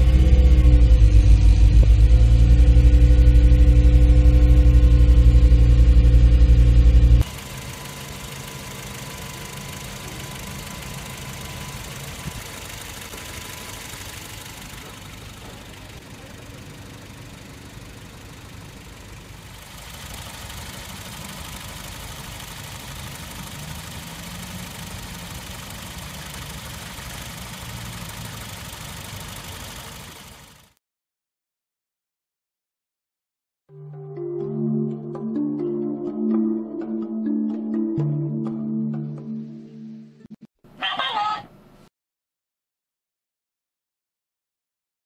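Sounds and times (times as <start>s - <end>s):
car engine idling: 0.0s - 30.8s.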